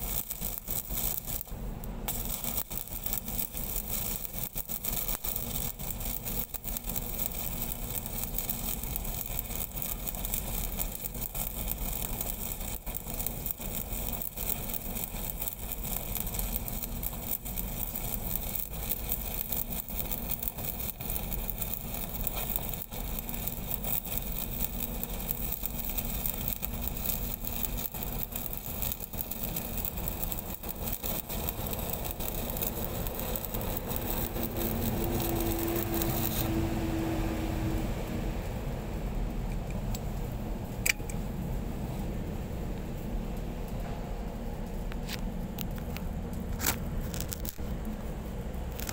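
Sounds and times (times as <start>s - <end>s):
welding arc crackling: 0.0s - 41.4s, 42.2s - 48.9s
engine hum: 26.2s - 44.8s.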